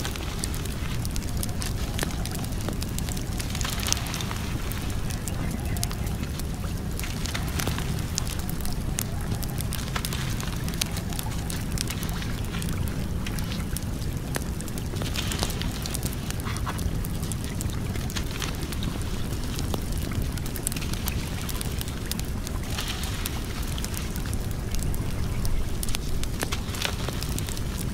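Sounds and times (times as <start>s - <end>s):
wood fire crackling and popping: 0.0s - 27.9s.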